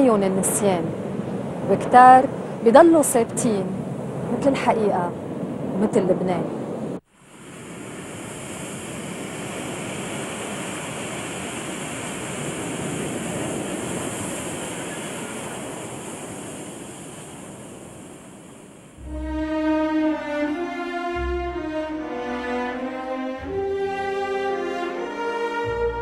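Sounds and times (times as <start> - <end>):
sea surf breaking on shore: 7.1 - 20.7
bowed string music: 19.0 - 26.0.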